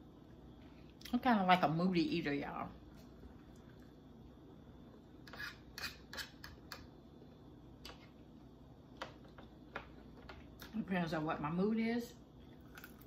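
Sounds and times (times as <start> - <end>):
metal fork scraping a plate: 5.3 - 6.5.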